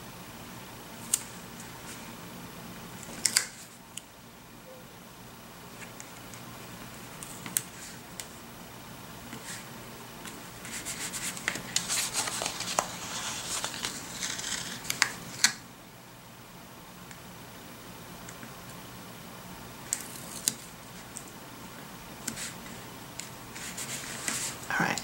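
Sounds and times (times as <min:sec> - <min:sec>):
paper rustling: 0:09.3 - 0:15.6, 0:23.5 - 0:24.6.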